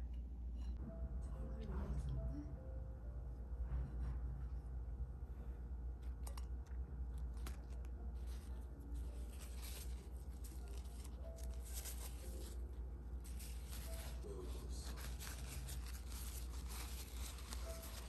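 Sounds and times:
steady low hum: 0.0s - 18.0s
paper napkin handled: 7.2s - 18.0s
scratchy rustling: 7.4s - 18.0s.

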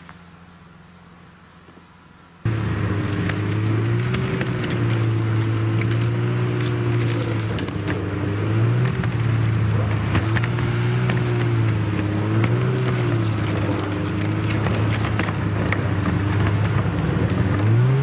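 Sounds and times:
snowmobile engine running: 2.4s - 18.0s
knocks and rattles: 8.9s - 17.6s.

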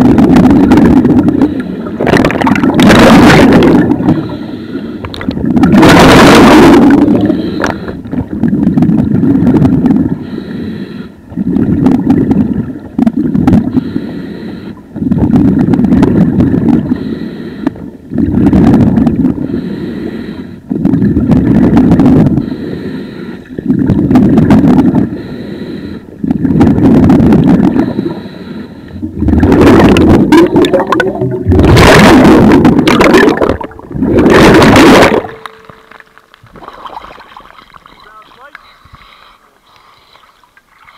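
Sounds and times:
rush of bubbles: 0.0s - 4.4s, 5.1s - 10.2s, 29.0s - 35.7s, 36.4s - 38.2s
diver breathing through regulator: 1.3s - 2.2s, 4.0s - 5.2s, 6.7s - 8.2s, 10.2s - 11.2s, 13.7s - 14.9s, 16.8s - 17.9s, 19.3s - 20.9s, 22.3s - 23.6s, 25.0s - 26.2s, 27.6s - 31.7s, 37.9s - 40.4s.

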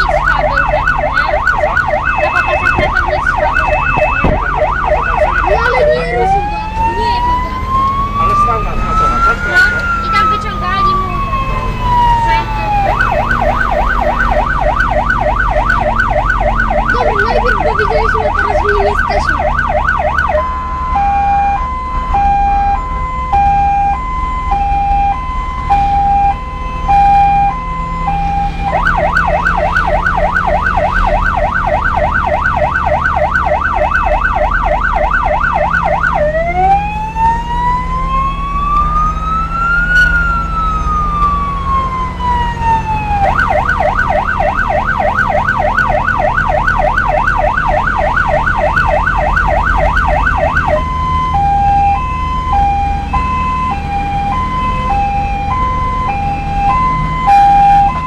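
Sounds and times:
electronic vehicle siren: 0.0s - 58.0s
engine and road rumble: 0.0s - 58.0s.

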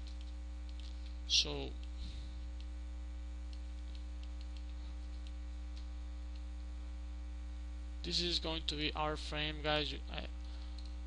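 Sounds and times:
computer mouse clicks: 0.0s - 1.2s, 3.5s - 6.5s, 10.7s - 11.0s
electrical mains hum: 0.0s - 11.0s
person speaking: 0.8s - 2.3s, 8.0s - 10.4s.

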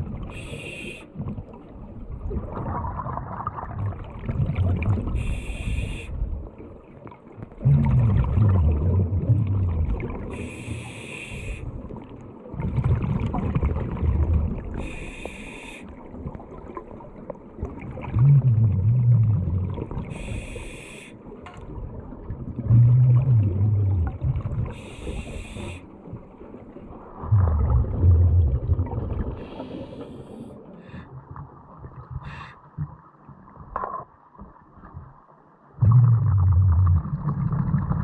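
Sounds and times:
exhaled bubbles rumbling: 0.0s - 0.5s, 1.2s - 10.6s, 11.7s - 15.2s, 16.0s - 20.5s, 21.4s - 38.0s
hissing regulator inhalations: 0.3s - 1.1s, 5.2s - 6.2s, 10.4s - 11.7s, 14.8s - 15.9s, 20.1s - 21.2s, 24.7s - 25.9s, 29.4s - 31.1s.

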